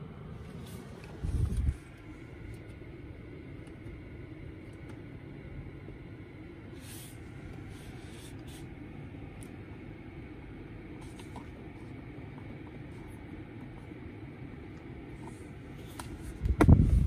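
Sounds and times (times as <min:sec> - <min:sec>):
car cabin rumble: 0:00.0 - 0:08.0, 0:09.0 - 0:17.0.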